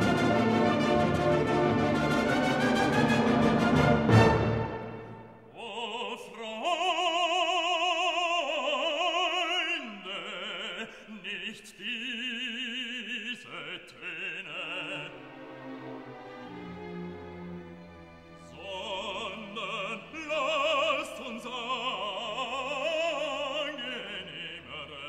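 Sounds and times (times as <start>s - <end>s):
orchestral chord: 0.0s - 5.4s
operatic singing with vibrato: 0.0s - 25.0s.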